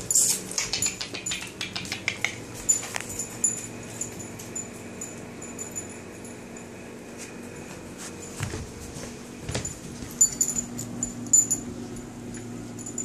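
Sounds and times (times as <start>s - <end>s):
metal collar tags jingling: 2.6s - 6.7s, 9.7s - 12.1s.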